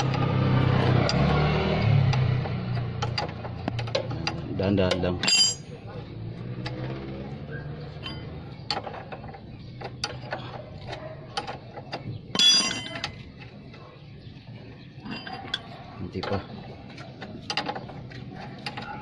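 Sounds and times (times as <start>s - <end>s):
ringing metal clink: 5.2s - 5.8s, 8.0s - 8.4s, 12.3s - 13.2s.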